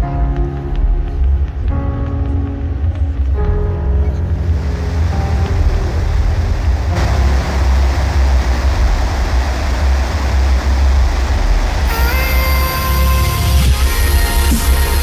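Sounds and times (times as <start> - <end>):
music: 0.0 - 15.0
fireworks crackling and rumbling: 4.4 - 15.0.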